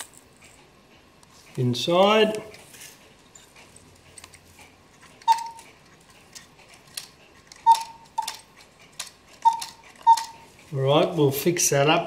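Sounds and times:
metallic clock ticks ringing: 0:05.2 - 0:05.7, 0:07.6 - 0:08.5, 0:09.4 - 0:10.5.

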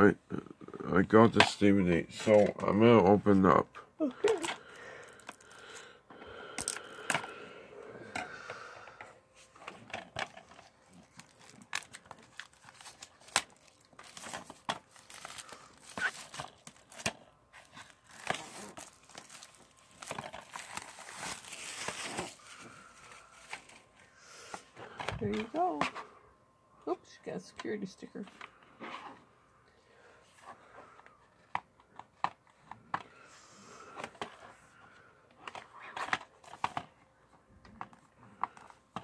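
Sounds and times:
plastic film crinkling and tearing: 0:04.2 - 0:05.9, 0:10.5 - 0:23.9.

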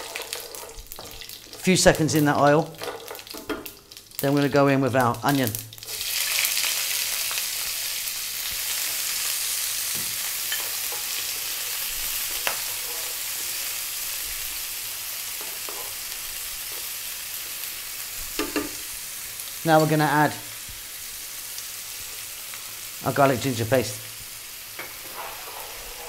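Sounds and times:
wooden spoon stirring: 0:00.0 - 0:01.7, 0:15.4 - 0:16.0, 0:24.8 - 0:26.0
onion sizzling in hot oil: 0:00.0 - 0:26.0.

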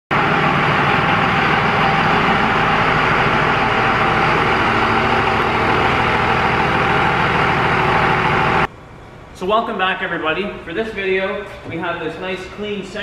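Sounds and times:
diesel engine idling: 0:00.1 - 0:09.4.

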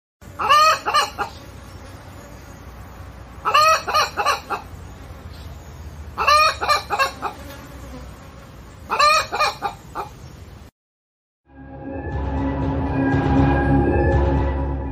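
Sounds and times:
chicken clucking: 0:00.4 - 0:01.4, 0:03.4 - 0:04.7, 0:06.2 - 0:07.4, 0:08.9 - 0:10.3.

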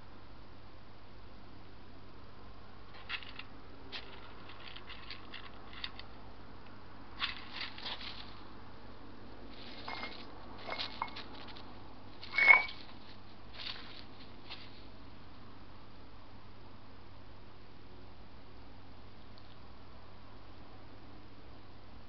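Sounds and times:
soft clicks and rustles: 0:02.9 - 0:08.5, 0:09.5 - 0:14.9
hedgehogs scuffling and scurrying: 0:07.2 - 0:08.5, 0:09.5 - 0:14.9.

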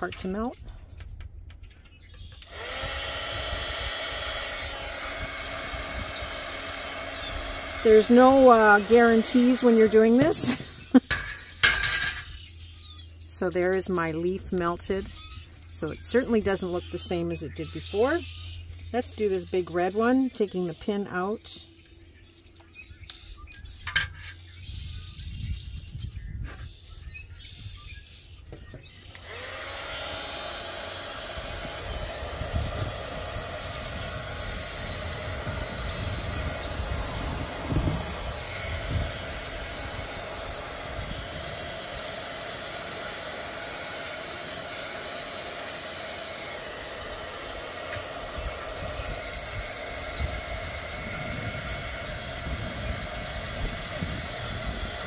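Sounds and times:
heat gun fan whine: 0:00.0 - 0:25.6, 0:28.5 - 0:55.0
wind rumble on microphone: 0:23.0 - 0:28.8, 0:31.4 - 0:41.7, 0:48.3 - 0:55.0.

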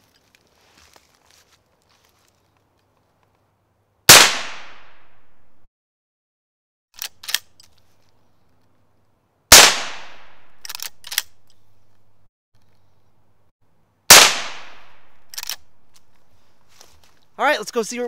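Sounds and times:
rifle shots: 0:04.1 - 0:05.3, 0:09.5 - 0:11.4, 0:14.1 - 0:15.7
rifle lever clacks: 0:10.6 - 0:11.6.

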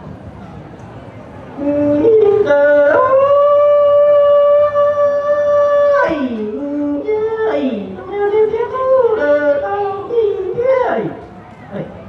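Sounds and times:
man singing: 0:01.6 - 0:11.2.

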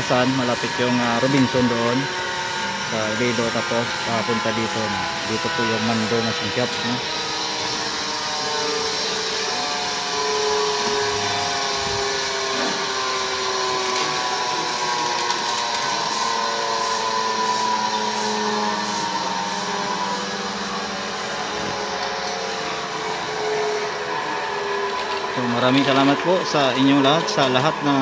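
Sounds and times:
grinder machine whine: 0:00.0 - 0:28.0.

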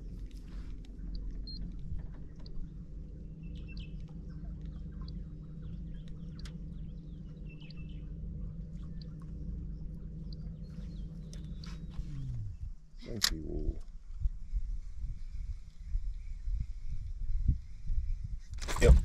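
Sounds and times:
boat motor humming: 0:00.0 - 0:13.0
small birds chirping: 0:00.1 - 0:12.9.

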